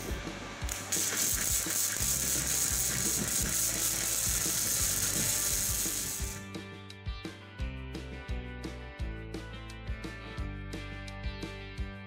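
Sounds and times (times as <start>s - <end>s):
welding arc crackling: 0.6s - 6.4s.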